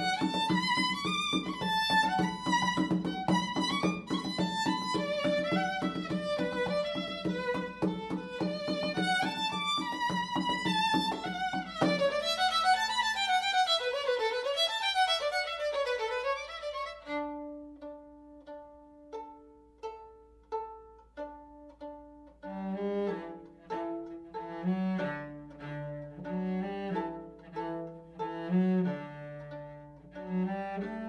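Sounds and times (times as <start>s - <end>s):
cello low bowed notes: 0.0s - 31.0s
violin playing: 0.0s - 31.0s.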